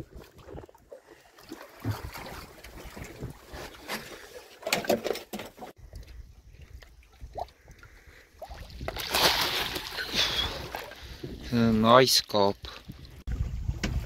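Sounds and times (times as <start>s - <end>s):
fish splashing at water surface: 8.4s - 11.0s.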